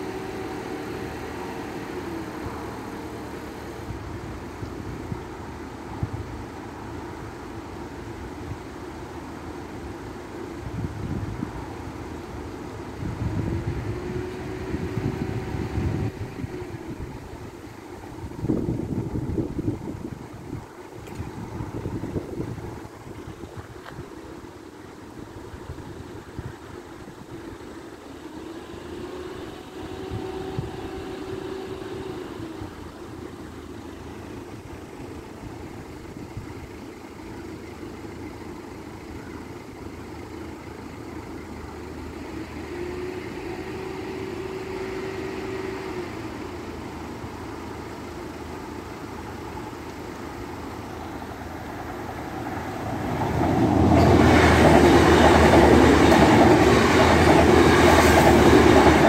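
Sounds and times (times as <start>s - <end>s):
low engine hum: 0.0s - 59.0s.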